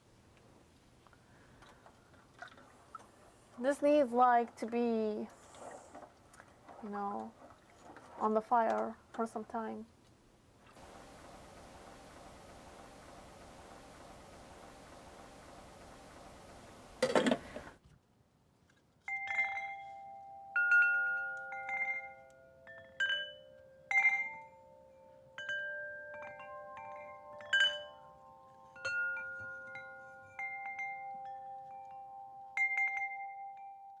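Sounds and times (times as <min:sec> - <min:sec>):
wind chimes ringing: 0:19.1 - 0:34.0.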